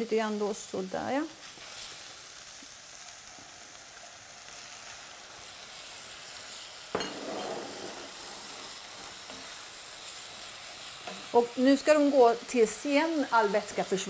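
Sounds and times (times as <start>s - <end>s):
food sizzling in a pot: 0.0s - 14.0s.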